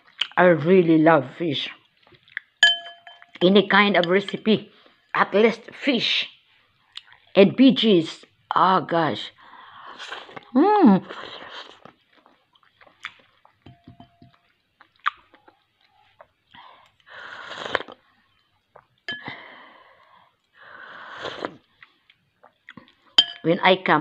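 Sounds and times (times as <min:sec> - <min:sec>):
person chewing: 0:01.8 - 0:03.4, 0:06.8 - 0:07.4, 0:11.1 - 0:19.1, 0:21.2 - 0:23.1
person slurping soup from spoon: 0:17.3 - 0:18.0, 0:21.0 - 0:21.7.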